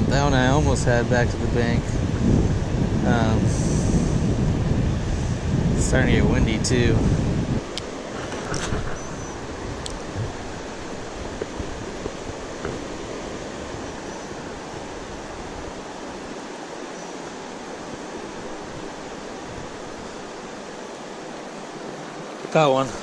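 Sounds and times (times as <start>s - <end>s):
wind buffeting microphone: 0.0s - 23.0s
river water rushing: 7.4s - 23.0s.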